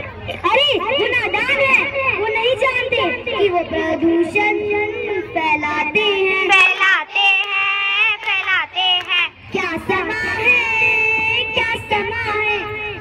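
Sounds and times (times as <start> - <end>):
girl singing: 1.1 - 13.0.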